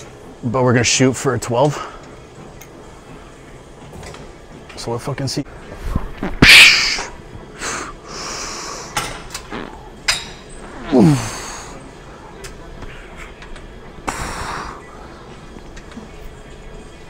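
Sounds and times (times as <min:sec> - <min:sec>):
person breathing hard: 0:07.6 - 0:09.0, 0:14.1 - 0:14.9
person grunting: 0:10.8 - 0:11.7.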